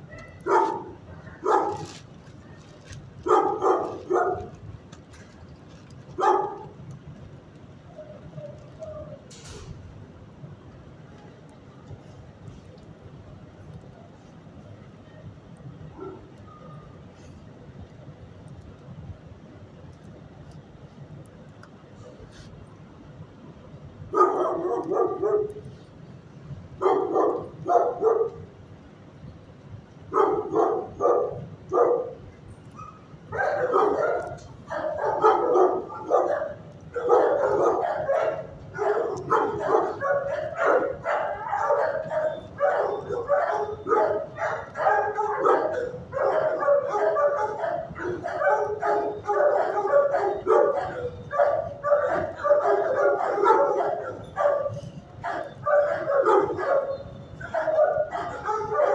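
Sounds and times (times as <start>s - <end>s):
dogs barking and yipping: 0.0s - 2.1s, 3.2s - 4.6s, 6.2s - 6.8s, 24.1s - 25.7s, 26.8s - 28.5s, 30.1s - 58.9s.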